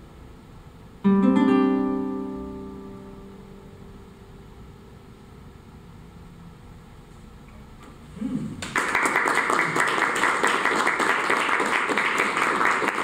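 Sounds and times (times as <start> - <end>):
crowd applauding: 8.6 - 13.0.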